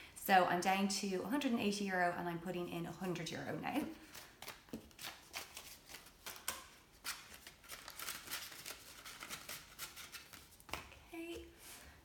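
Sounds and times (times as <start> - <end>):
banknotes rustling and flicking: 4.0 - 11.0.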